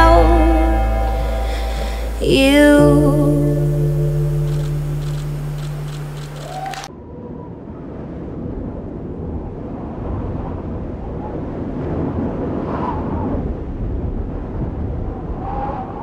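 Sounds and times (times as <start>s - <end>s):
faint gliding tones: 0.0s - 6.9s.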